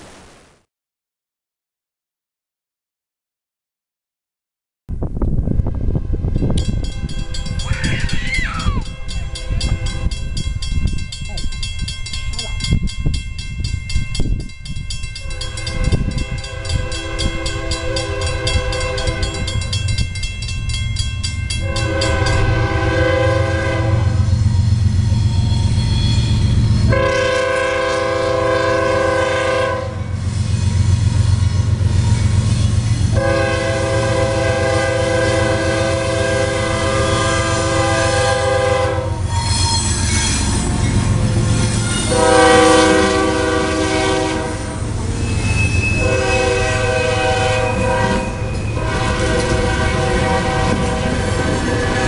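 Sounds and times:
diesel locomotive rumble: 5.0 - 52.0
crossing warning bell ringing: 6.2 - 52.0
locomotive air horn blasts: 15.2 - 19.6, 21.6 - 24.4, 26.9 - 30.2, 33.1 - 39.6, 41.9 - 45.0, 45.6 - 52.0.

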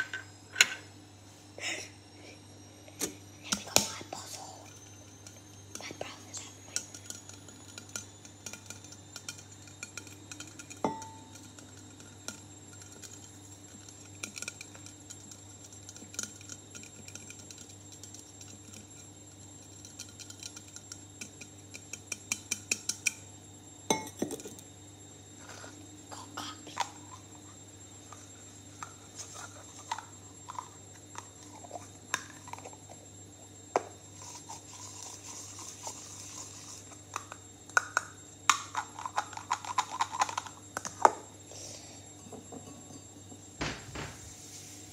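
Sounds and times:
fingernails tapping metal bottle: 6.7 - 23.2.

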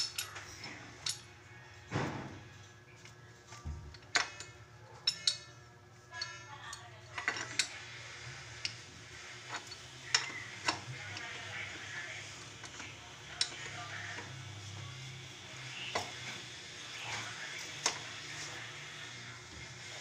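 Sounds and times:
hard objects clinking: 0.0 - 1.4, 3.8 - 14.8.

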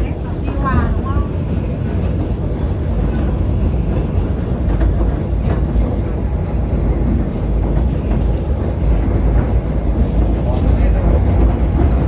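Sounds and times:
passenger train rumbling on track: 0.0 - 12.0.

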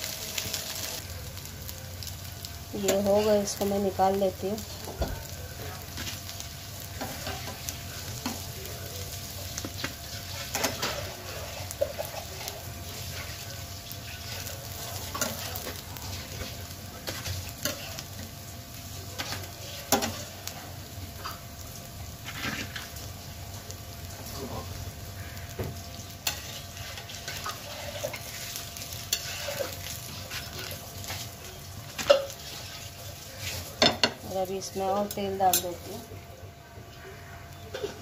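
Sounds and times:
patties sizzling in oil: 0.0 - 38.0
spatula scraping and knocking pan: 25.5 - 31.2.

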